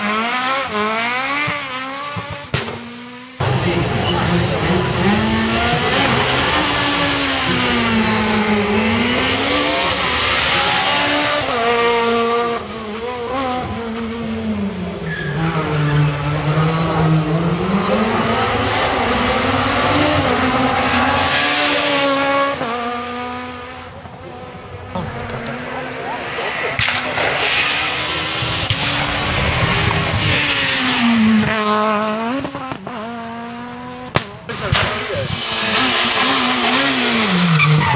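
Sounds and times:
rally car engine revving hard: 0.0 - 37.9.

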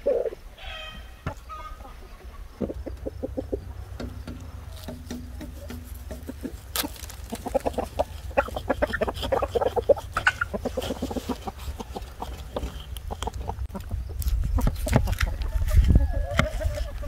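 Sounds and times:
chickens clucking: 0.0 - 17.0.

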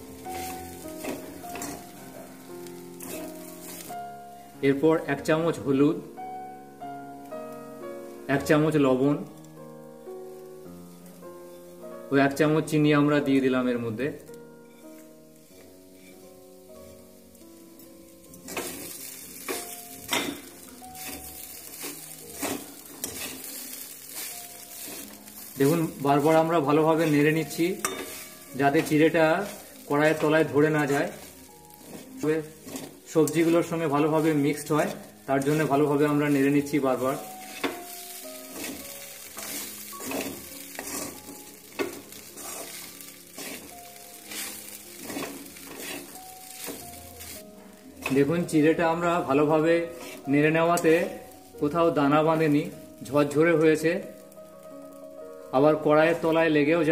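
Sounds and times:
food sizzling in a pan: 0.0 - 56.9
soft background music: 0.0 - 56.9
metal spatula scraping a pan: 0.2 - 4.0, 14.6 - 17.1, 18.3 - 48.5, 49.8 - 51.4.

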